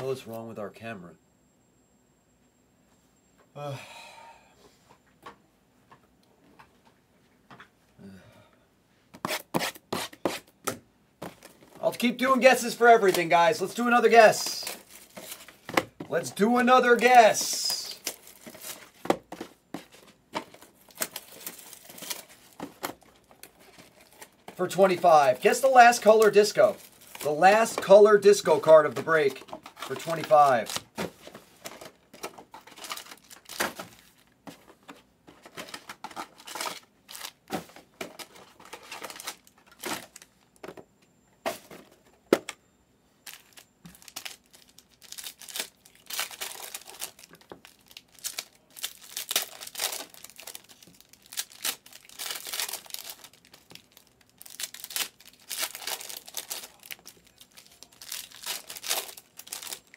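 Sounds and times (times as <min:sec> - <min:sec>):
foil card packs crinkling and tearing: 0:11.2 - 0:40.5, 0:43.2 - 0:59.9.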